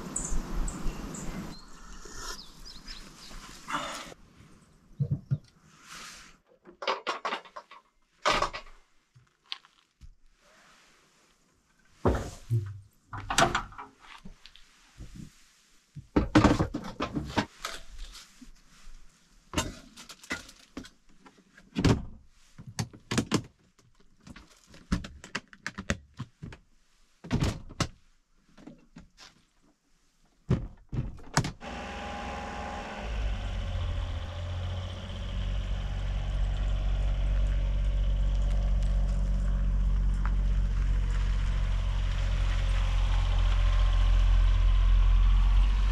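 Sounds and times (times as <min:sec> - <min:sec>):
knocks and thunks of loading gear: 0:30.5 - 0:31.6
small truck engine idling: 0:31.6 - 0:45.9.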